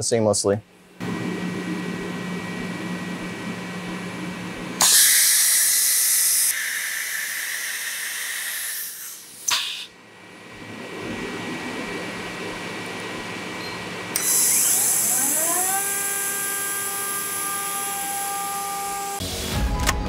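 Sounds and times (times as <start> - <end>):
machine hum: 0.6 - 20.0
compressed air blast hissing: 4.8 - 9.9.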